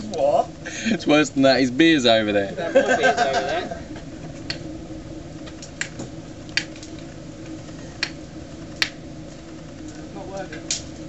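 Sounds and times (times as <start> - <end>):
bonfire crackling: 0.0 - 11.0
sharp pops of fire: 3.8 - 11.0.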